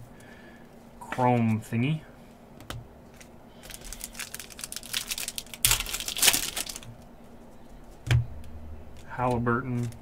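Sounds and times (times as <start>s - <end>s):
foil wrapper crinkling: 3.6s - 6.9s.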